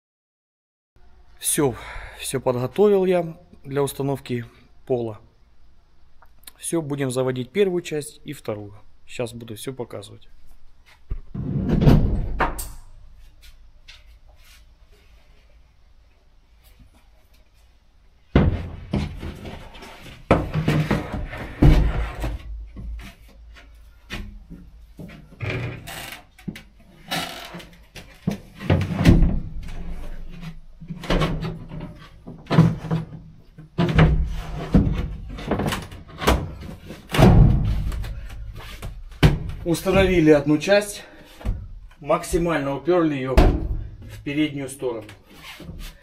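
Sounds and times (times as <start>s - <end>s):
plywood panel thudding on metal floor: 33.8s - 38.3s.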